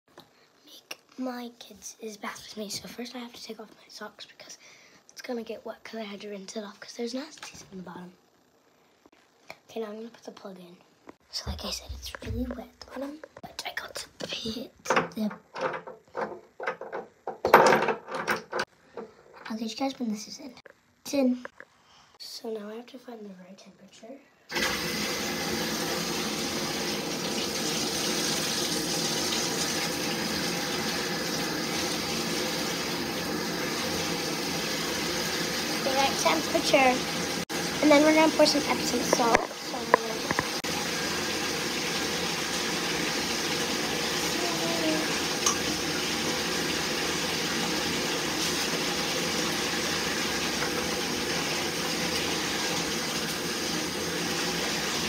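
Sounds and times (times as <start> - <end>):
water pouring into bathtub: 24.5 - 55.0.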